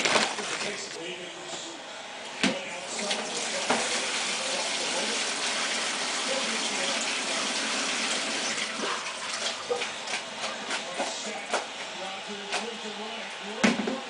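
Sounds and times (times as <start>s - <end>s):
tap water running into sink: 2.9s - 10.2s.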